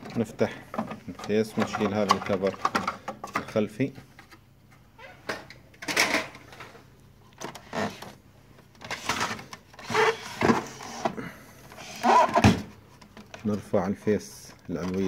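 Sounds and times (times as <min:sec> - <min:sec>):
plastic rattling and clicking: 0:00.0 - 0:03.6, 0:14.5 - 0:15.0.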